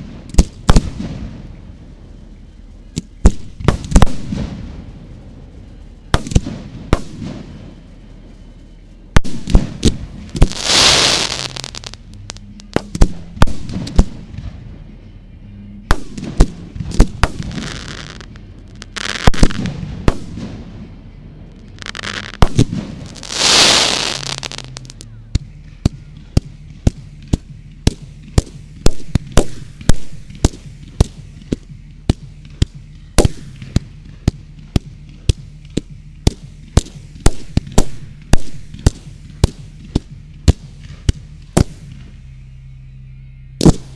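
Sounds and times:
rapid firework reports: 0:09.2 - 0:14.6, 0:15.9 - 0:20.7, 0:21.5 - 0:25.1
fireworks bangs: 0:09.3 - 0:14.2, 0:16.0 - 0:20.6, 0:21.6 - 0:25.0
hissing firework rushes: 0:10.4 - 0:12.0, 0:21.8 - 0:25.0.

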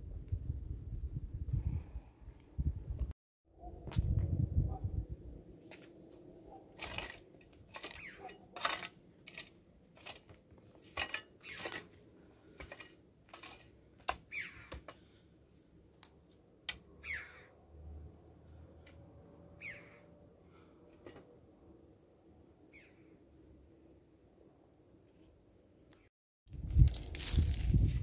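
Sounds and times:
shovel chopping into dry soil: 0:06.7 - 0:15.1.

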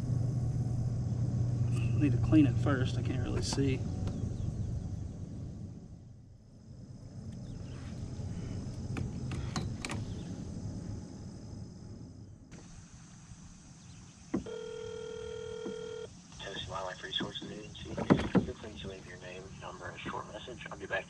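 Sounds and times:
handling noise rumble: 0:00.0 - 0:14.5
phone ringback tone: 0:14.4 - 0:16.1.

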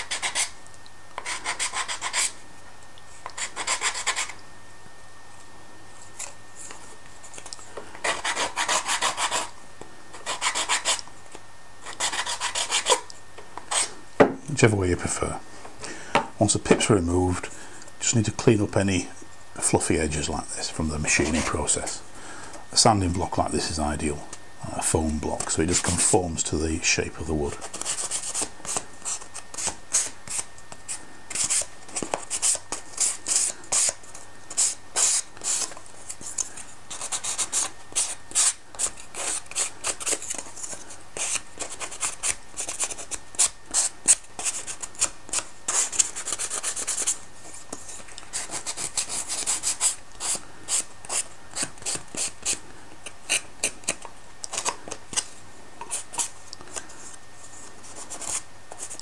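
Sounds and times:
sanding block scratching wood: 0:08.0 - 0:09.5, 0:10.2 - 0:11.0, 0:11.9 - 0:13.0.

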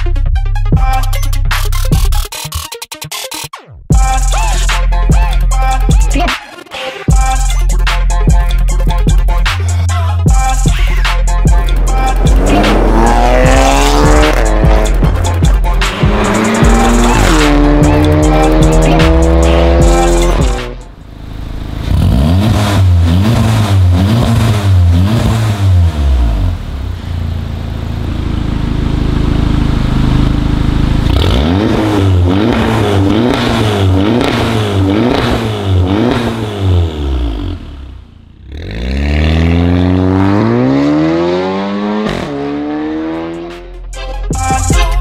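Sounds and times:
car engine revving: 0:10.4 - 0:43.7.

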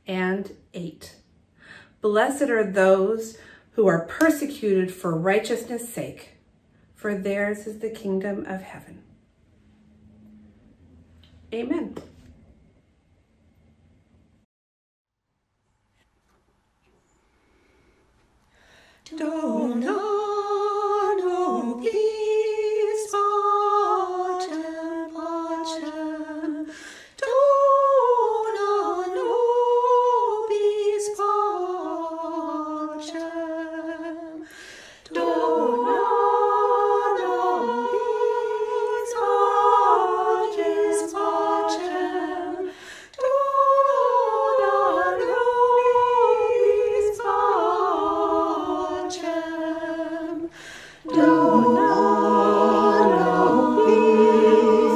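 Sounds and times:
women singing a slow hymn: 0:18.6 - 0:54.9.

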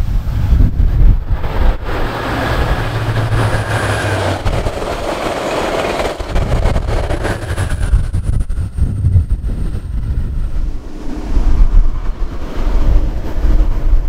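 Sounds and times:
diesel locomotive engine drone: 0:00.0 - 0:14.0
rush of passing train coaches: 0:00.0 - 0:14.0
train wheel clicks: 0:01.9 - 0:08.9.

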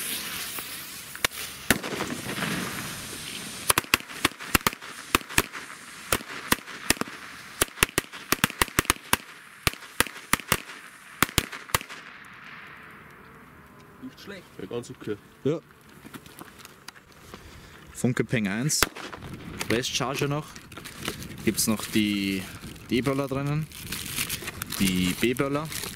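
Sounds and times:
firecracker bangs: 0:00.0 - 0:12.8, 0:18.8 - 0:19.9.

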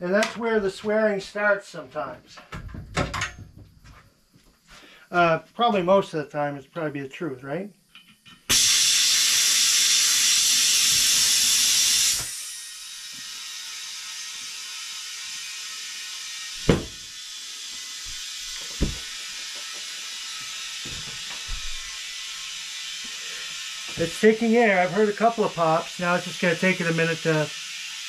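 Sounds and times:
compressed air hissing into tire: 0:08.5 - 0:28.0.

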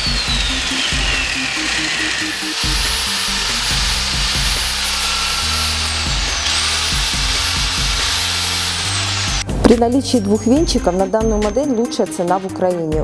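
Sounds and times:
drill mixer whirring: 0:00.0 - 0:09.5
background music with bass line: 0:00.0 - 0:13.0.

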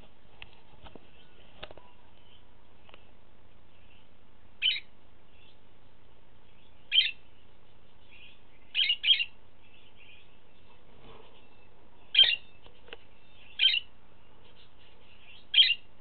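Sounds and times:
budgerigar chirping: 0:04.6 - 0:04.9, 0:06.9 - 0:07.2, 0:08.0 - 0:10.3, 0:11.5 - 0:12.6, 0:13.4 - 0:13.9, 0:14.6 - 0:15.9.

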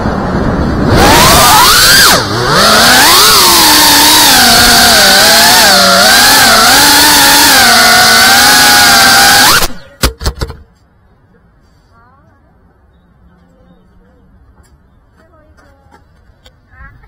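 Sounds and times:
drone motors whining: 0:00.0 - 0:09.8.

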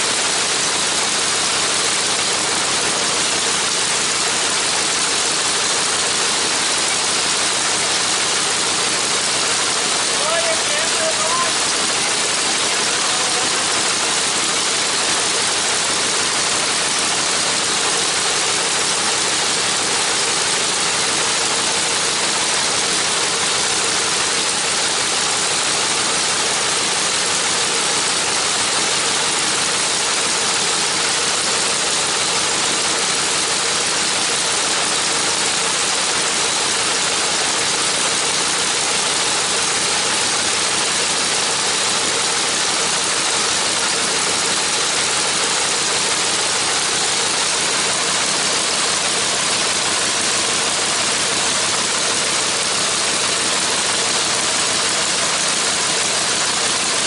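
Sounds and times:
radial engine running: 0:00.0 - 0:57.0.

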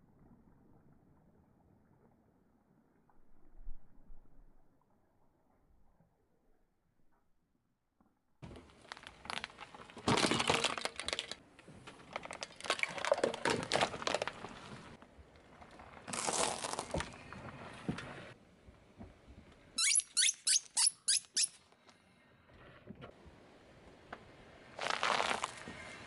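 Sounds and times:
tyre crushing hard plastic: 0:08.5 - 0:11.4, 0:16.1 - 0:17.2, 0:24.8 - 0:25.7.

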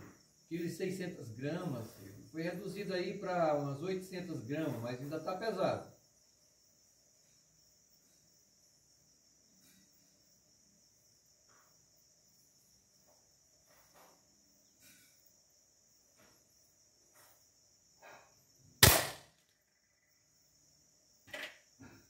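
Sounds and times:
crickets chirping: 0:00.0 - 0:22.0
air rifle shot crack: 0:18.8 - 0:19.3.

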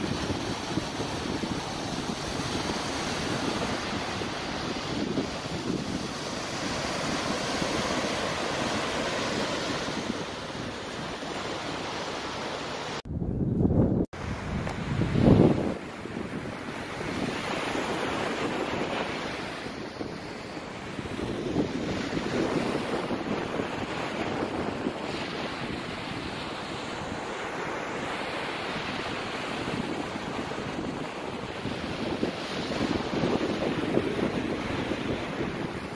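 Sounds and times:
surf washing: 0:00.0 - 0:13.0, 0:13.6 - 0:35.9
waves breaking on beach: 0:00.0 - 0:13.0, 0:14.2 - 0:35.9
wind buffeting microphone: 0:00.0 - 0:35.9.

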